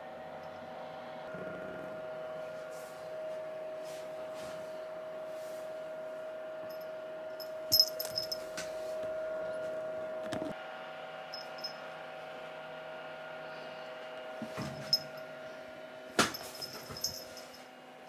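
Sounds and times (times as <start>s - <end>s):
steady hum: 0.0s - 10.2s, 11.2s - 17.6s
small collar bell jingling: 6.7s - 8.5s, 11.3s - 11.8s, 14.8s - 15.2s, 16.3s - 17.6s.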